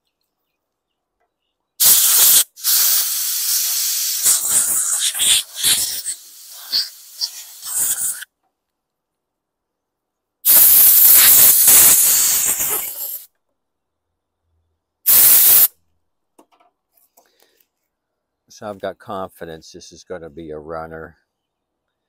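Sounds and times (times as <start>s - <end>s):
compressed air blow gun hissing: 1.8s - 8.3s, 10.5s - 13.3s, 15.1s - 15.7s.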